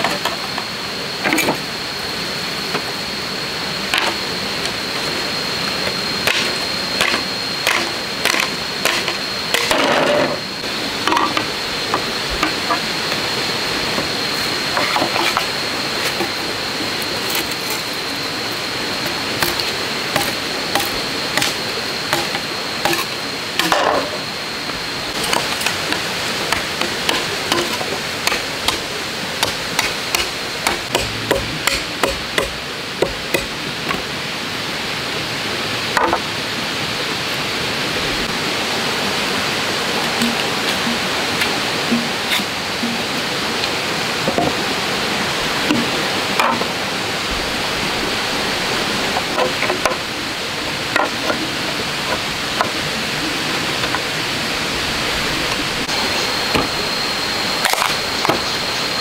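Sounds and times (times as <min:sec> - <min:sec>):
steady background rush: 0:00.0 - 0:59.0
machete striking bamboo: 0:29.4 - 0:33.5.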